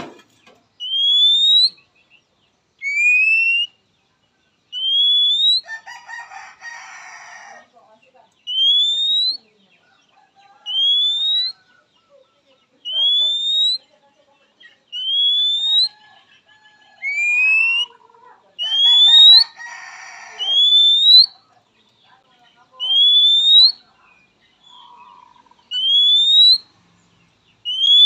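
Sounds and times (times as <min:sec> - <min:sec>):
scratchy bird chatter: 0:00.0 - 0:28.0
bird rising whistle: 0:00.8 - 0:01.8, 0:08.5 - 0:09.4, 0:10.6 - 0:11.6, 0:13.0 - 0:13.8, 0:15.0 - 0:16.0, 0:17.0 - 0:17.9, 0:18.7 - 0:19.6, 0:20.3 - 0:21.4, 0:22.8 - 0:23.8, 0:25.7 - 0:26.7, 0:27.7 - 0:28.0.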